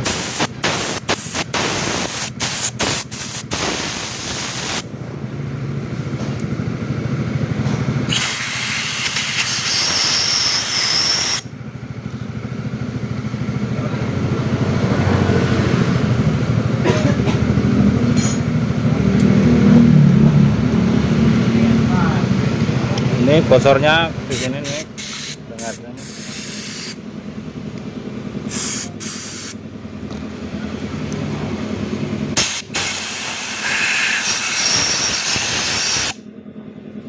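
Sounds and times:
aerosol spray hissing: 0.0 - 4.9, 24.3 - 27.0, 28.5 - 29.6
engine idling: 0.0 - 37.0.

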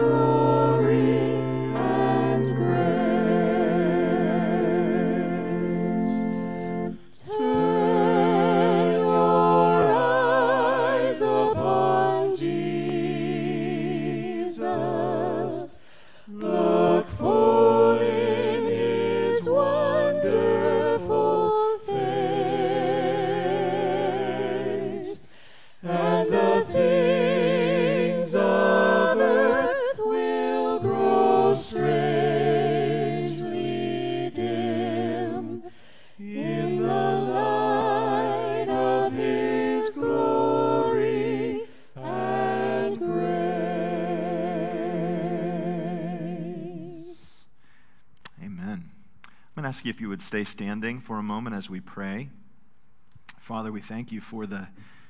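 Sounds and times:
several voices singing: 0.0 - 47.5.

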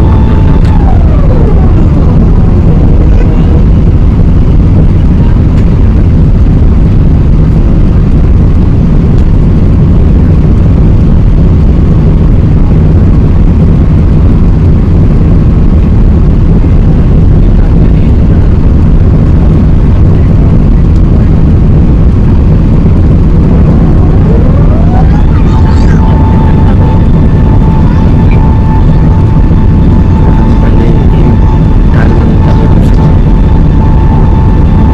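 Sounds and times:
jet engine cabin rumble: 0.0 - 34.9.

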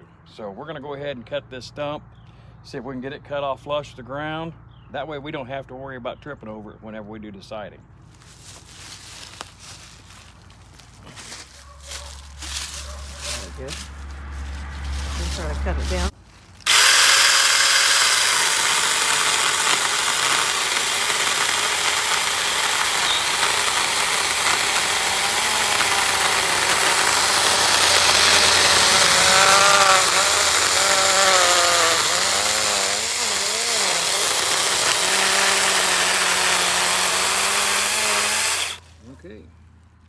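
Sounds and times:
chainsaw cutting wood: 11.1 - 13.9, 14.9 - 38.9.

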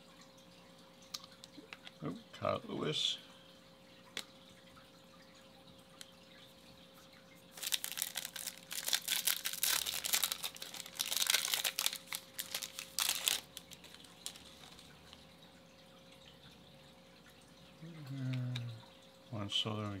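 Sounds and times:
wrapper being torn and crinkled: 7.5 - 14.8.

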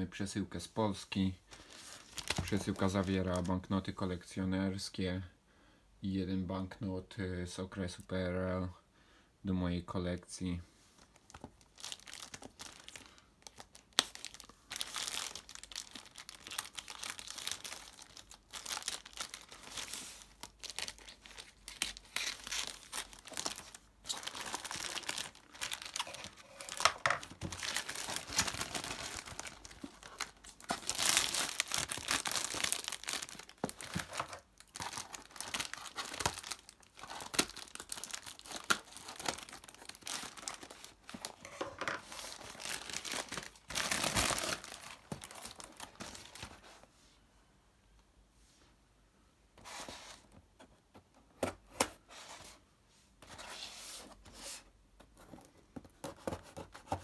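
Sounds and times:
plastic film crinkling and tearing: 1.7 - 3.6, 11.0 - 41.5, 42.1 - 46.6.

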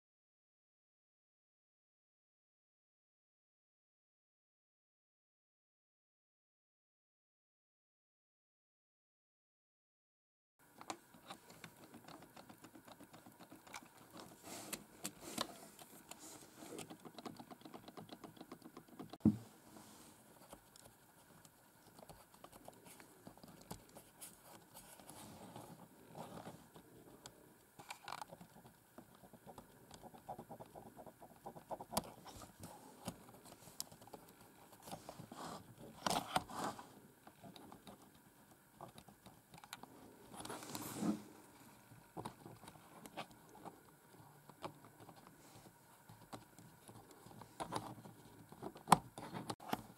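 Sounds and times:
keyboard keys clicking and rattling: 16.7 - 19.2.

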